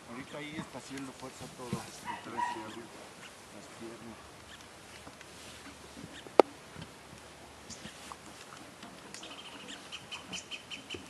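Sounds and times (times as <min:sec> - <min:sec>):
faint taps and scrapes: 0:00.5 - 0:02.1
bird chirping rapidly: 0:02.0 - 0:03.4, 0:09.2 - 0:11.0.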